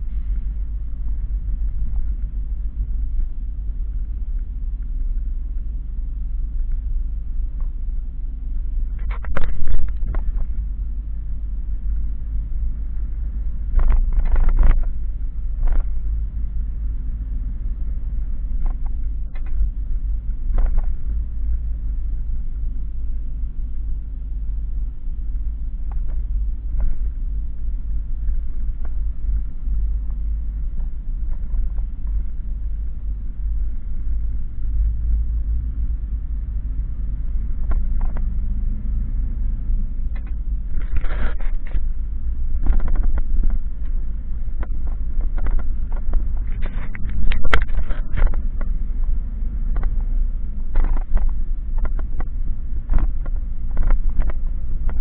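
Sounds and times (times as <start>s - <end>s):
vehicle road and engine rumble: 0.0s - 55.0s
knocks and rattles: 42.6s - 49.1s.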